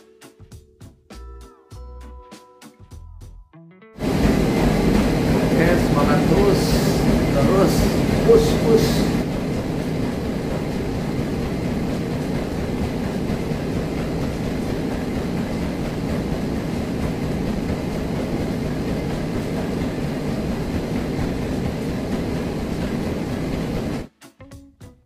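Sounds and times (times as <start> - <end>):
low mechanical rumble: 4.0 - 24.1.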